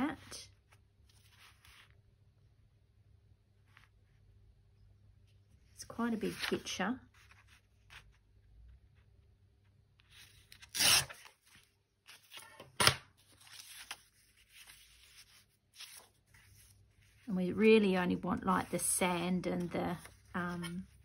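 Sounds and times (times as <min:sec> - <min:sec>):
paper rustling: 0:00.6 - 0:02.0, 0:10.0 - 0:17.3, 0:18.5 - 0:21.0
paper ripping against ruler: 0:10.4 - 0:11.4.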